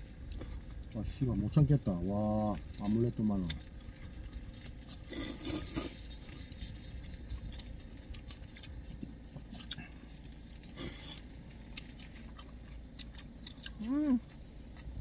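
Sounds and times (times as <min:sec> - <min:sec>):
low steady hum: 0:00.0 - 0:15.0
people chewing: 0:00.0 - 0:15.0.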